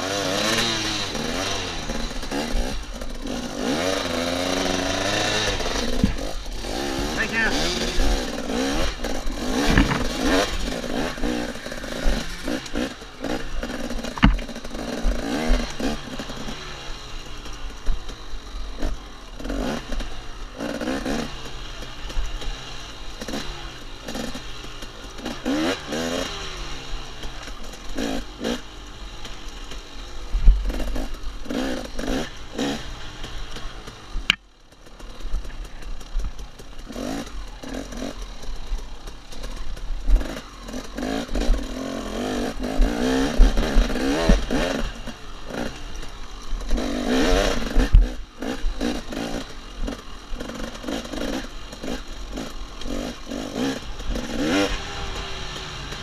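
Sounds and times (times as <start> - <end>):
dirt bike engine revving: 0.0 - 56.0
bike knocks and clatter: 8.6 - 11.2, 12.0 - 16.9.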